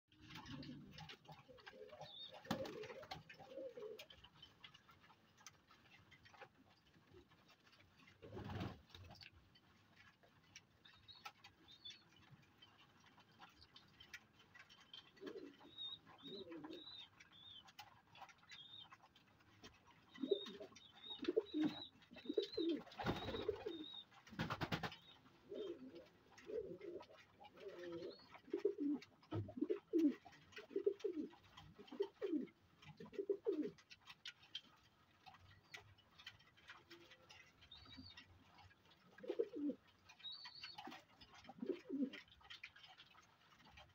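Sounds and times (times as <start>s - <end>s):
pigeons cooing: 0.2s - 4.2s, 14.6s - 19.0s, 19.8s - 33.8s, 39.0s - 43.1s.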